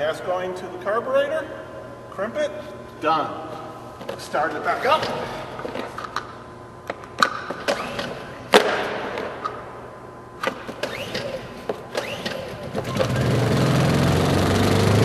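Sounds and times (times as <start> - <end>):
generator engine running: 10.8 - 15.0.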